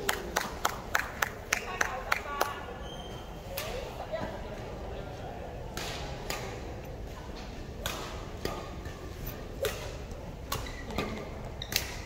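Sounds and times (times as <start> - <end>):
racket hitting shuttle: 7.8 - 12.0.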